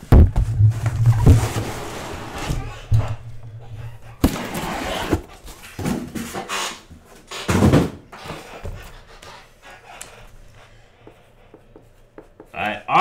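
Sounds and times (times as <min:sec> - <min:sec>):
cardboard rubbing and shuffling: 0:04.2 - 0:06.4.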